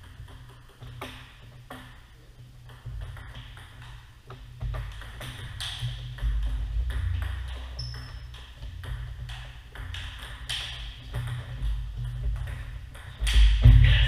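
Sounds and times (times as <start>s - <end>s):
table tennis ball clicking: 2.7s - 13.5s.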